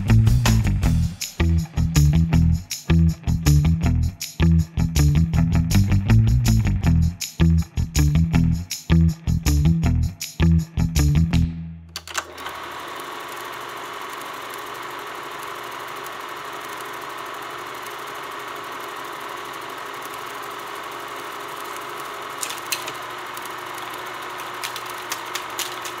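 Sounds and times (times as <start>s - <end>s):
film projector whirring: 12.0s - 26.0s.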